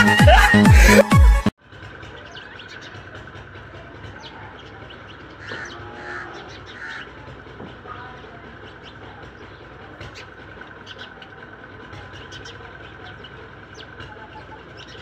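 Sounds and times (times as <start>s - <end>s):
short harsh bird calls: 4.2s - 7.2s.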